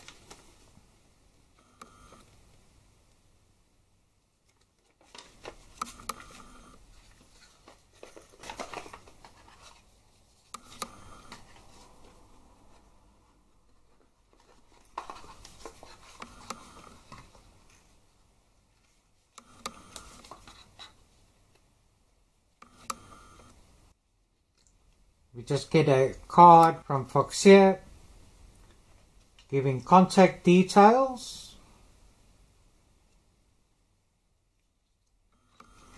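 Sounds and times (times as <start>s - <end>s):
paper and cardboard boxes rustling: 6.9s - 10.3s, 13.8s - 17.5s.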